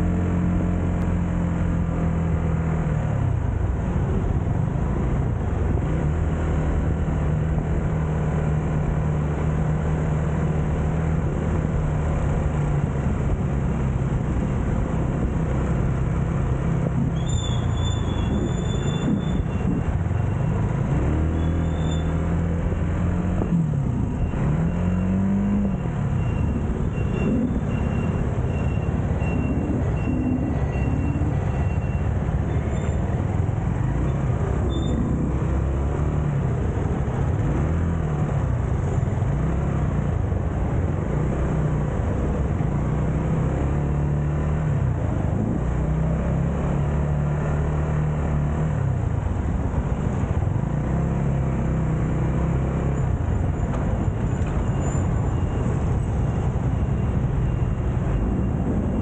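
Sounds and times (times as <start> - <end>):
road noise: 0.0 - 59.0
motorcycle engine revving: 9.3 - 38.4.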